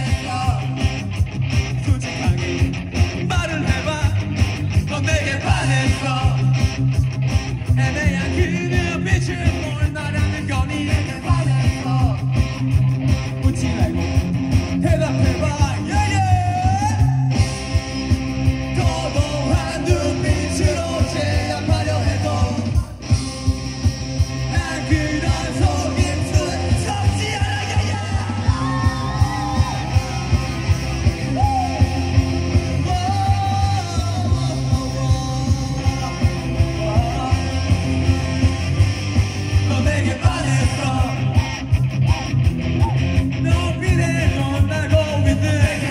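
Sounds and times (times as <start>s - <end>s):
punk rock band playing: 0.0s - 45.9s
shouted vocals: 24.6s - 38.7s, 39.7s - 45.9s.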